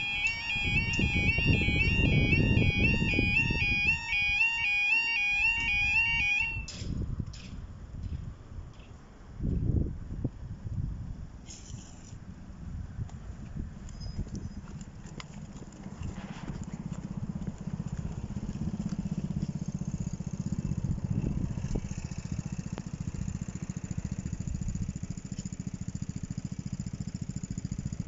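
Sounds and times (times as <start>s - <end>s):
engine running with fast pulse: 0.0s - 6.7s, 14.4s - 28.0s.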